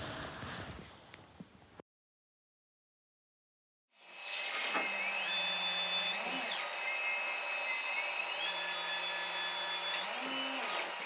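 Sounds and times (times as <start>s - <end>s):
machine whine rising in pitch: 4.6s - 11.0s.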